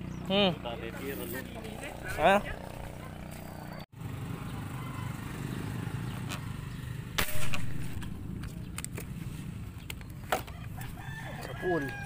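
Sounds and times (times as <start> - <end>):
sharp loud crack: 7.2 - 8.2.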